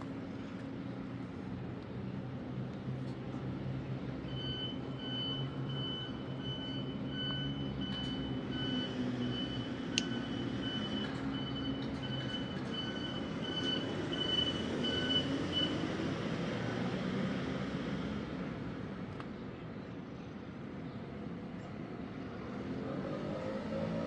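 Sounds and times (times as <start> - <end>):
reversing alarm beeping: 4.3 - 15.8.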